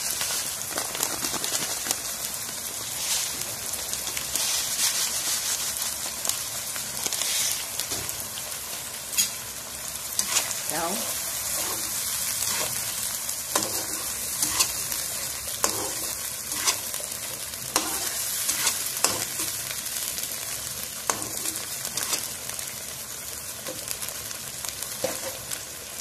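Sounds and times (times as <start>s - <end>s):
food sizzling in a wok: 0.0s - 26.0s
spatula scraping and knocking pan: 13.5s - 14.9s, 15.6s - 16.9s, 17.7s - 19.6s.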